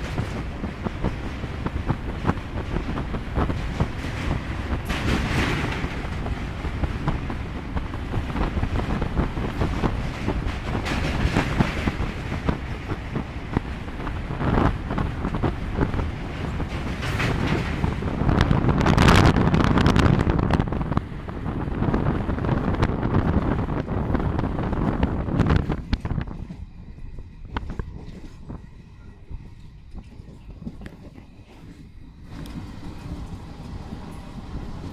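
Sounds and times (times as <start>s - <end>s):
train wheels on rails: 0.0s - 34.9s
wind buffeting microphone: 0.0s - 34.9s.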